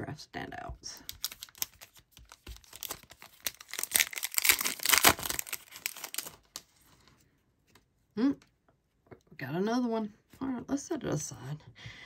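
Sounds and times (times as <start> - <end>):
plastic wrapper tearing: 1.0 - 6.7.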